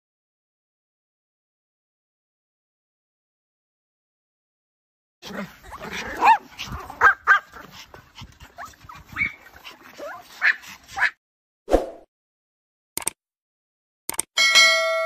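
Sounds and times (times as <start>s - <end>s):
small dogs yipping and whimpering: 5.2s - 11.2s
short click: 13.0s - 13.2s, 14.1s - 14.3s.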